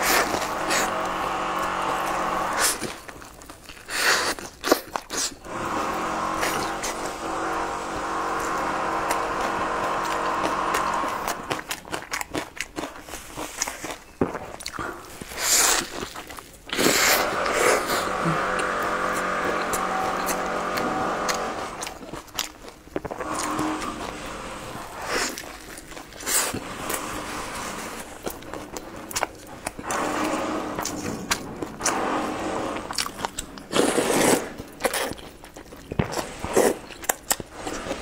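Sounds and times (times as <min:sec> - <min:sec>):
crunchy bites and chewing: 0:00.0 - 0:38.0
humming drone: 0:05.4 - 0:11.6, 0:17.2 - 0:22.1, 0:23.2 - 0:25.1.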